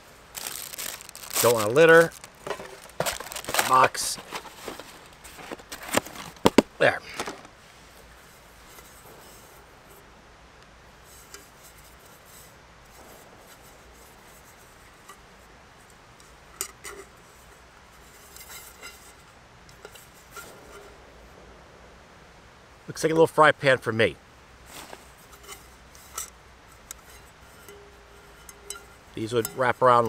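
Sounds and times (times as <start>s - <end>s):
metal pan rubbing and clicking: 25.2s - 30.0s.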